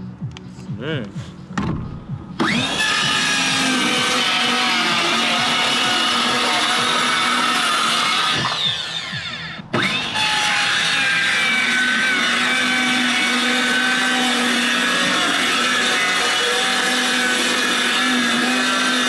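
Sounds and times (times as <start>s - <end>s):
circular saw cutting wood: 2.4s - 19.0s.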